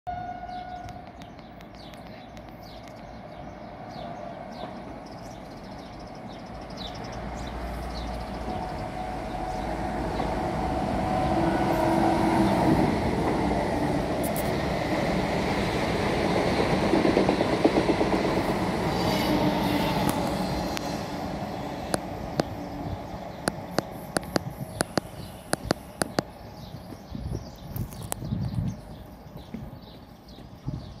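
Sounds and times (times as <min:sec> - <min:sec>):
train passing by: 0:00.1 - 0:31.0
train wheels clicking: 0:11.3 - 0:22.7, 0:23.3 - 0:27.1.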